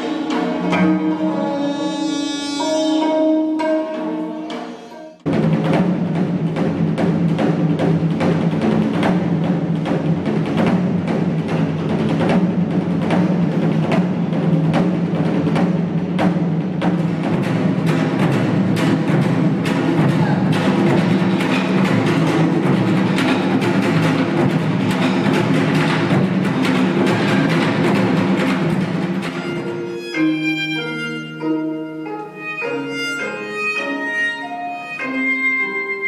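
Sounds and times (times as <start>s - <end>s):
loud dense drumming: 5.2s - 30.1s.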